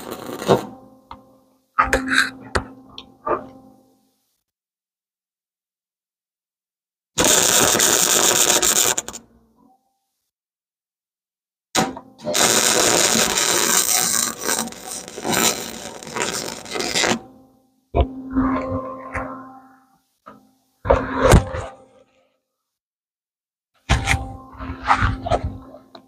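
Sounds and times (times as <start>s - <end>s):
welder arc crackling: 0.0s - 0.7s, 7.2s - 9.2s, 12.3s - 17.2s.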